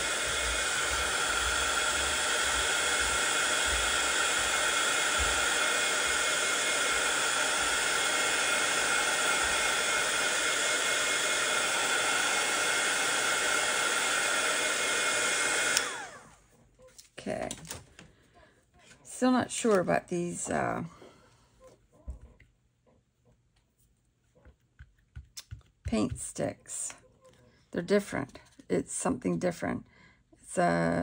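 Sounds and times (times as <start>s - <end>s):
heat tool blowing air: 0.0s - 16.3s.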